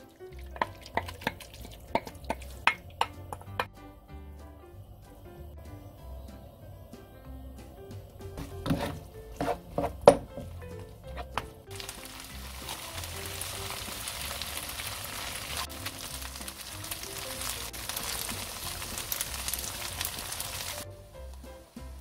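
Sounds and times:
food sizzling in pan: 0:00.0 - 0:03.9, 0:04.5 - 0:22.0
background music: 0:00.0 - 0:22.0
wooden spatula knocking pan: 0:00.3 - 0:03.7, 0:07.9 - 0:14.1.

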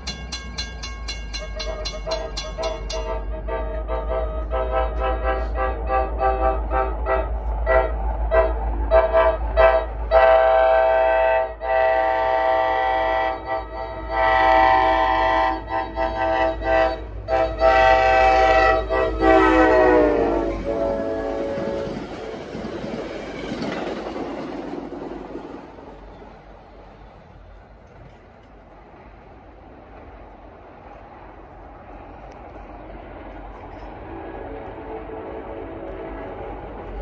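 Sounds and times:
crossing signal bell ringing: 0:00.0 - 0:03.9
train air horn blasts: 0:01.3 - 0:22.6, 0:34.1 - 0:37.0.

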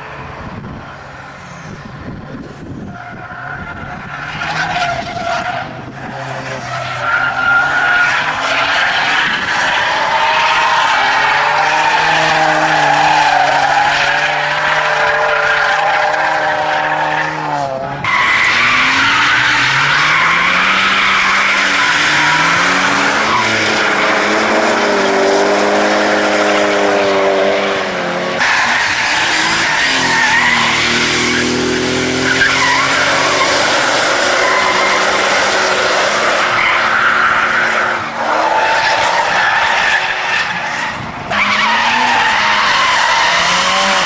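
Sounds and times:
car engines revving: 0:00.0 - 0:44.0
tyres screeching: 0:28.4 - 0:44.0.

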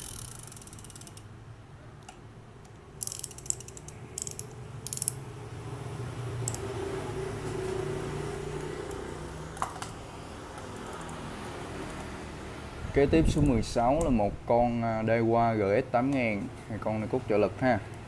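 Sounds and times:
fishing reel ratchet clicking: 0:00.0 - 0:01.3, 0:03.0 - 0:05.2, 0:06.4 - 0:06.6, 0:10.8 - 0:11.2.

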